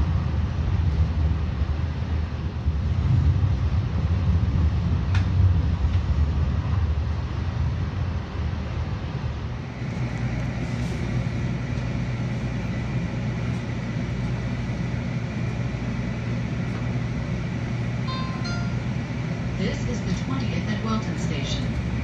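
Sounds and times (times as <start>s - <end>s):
light rail train humming: 0.0s - 22.0s
traffic noise: 0.0s - 22.0s
thin high whine: 18.0s - 19.2s.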